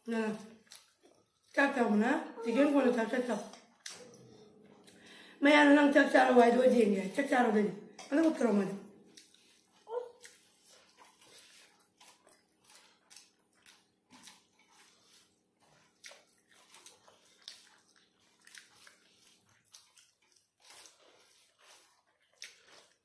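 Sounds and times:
chewing and lip smacks: 0:00.3 - 0:01.6, 0:03.4 - 0:05.1, 0:09.0 - 0:23.0.

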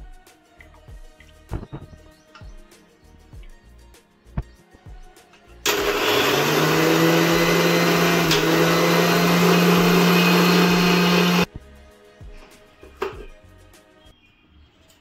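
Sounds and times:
electric mixer grinder motor: 0:05.6 - 0:11.5.

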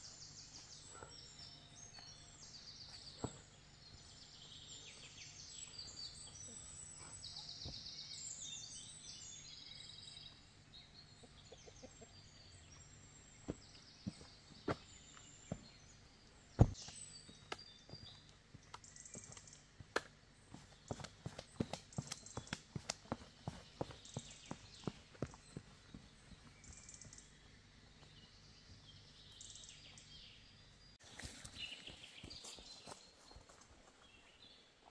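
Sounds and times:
small birds singing: 0:00.0 - 0:34.9.

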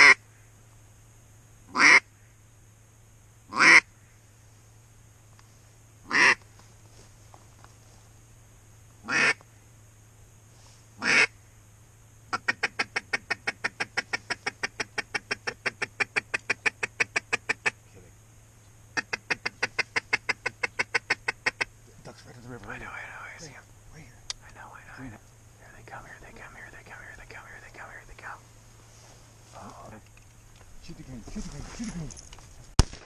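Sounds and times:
duck call quacking: 0:01.7 - 0:02.0, 0:03.5 - 0:03.9, 0:06.1 - 0:06.4, 0:09.1 - 0:09.4, 0:11.0 - 0:11.3, 0:12.3 - 0:17.8, 0:19.0 - 0:21.7.

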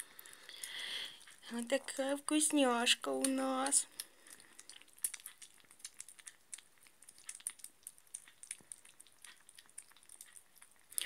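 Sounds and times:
kittens lapping and smacking: 0:00.0 - 0:11.0.

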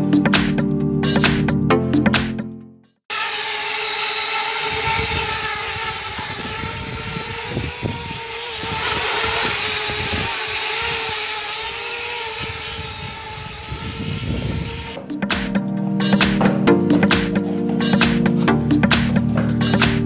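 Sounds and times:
quadcopter propellers buzzing: 0:03.1 - 0:20.0.

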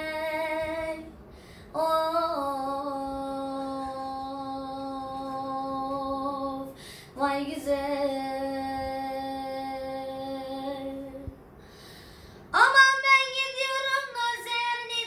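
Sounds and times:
boy singing unaccompanied: 0:12.6 - 0:15.0.

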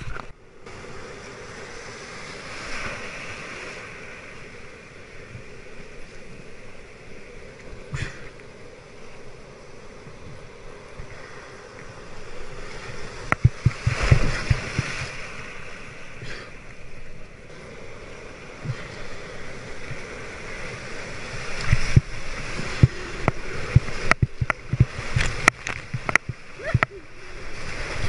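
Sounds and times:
surf rushing and splashing: 0:00.0 - 0:28.0
paddle strokes in water: 0:10.0 - 0:16.7, 0:17.6 - 0:28.0
sharp splashes and knocks: 0:13.3 - 0:15.2.

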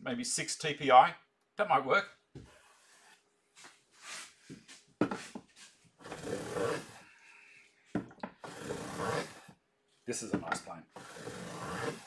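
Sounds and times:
hand plane shaving wood: 0:06.0 - 0:07.0, 0:08.4 - 0:09.5, 0:11.0 - 0:12.0.

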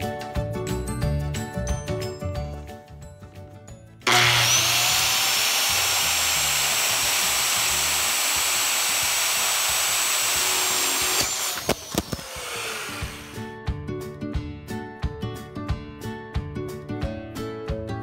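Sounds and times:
circular saw cutting plastic board: 0:04.1 - 0:13.4.

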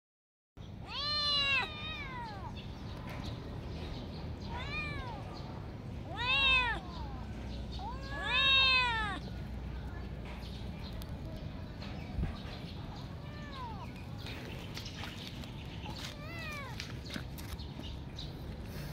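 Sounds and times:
kittens meowing: 0:00.8 - 0:02.7, 0:04.4 - 0:09.3, 0:13.0 - 0:14.1.

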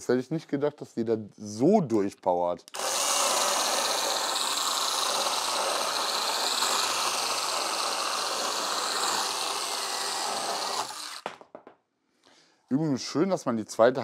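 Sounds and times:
chainsaw cutting wood: 0:02.7 - 0:11.4.

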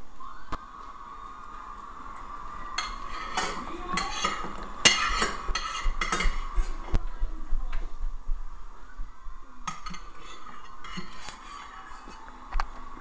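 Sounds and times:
faint steady hum: 0:00.0 - 0:13.0
spoon scraping a bowl: 0:02.8 - 0:06.8, 0:09.7 - 0:12.3.

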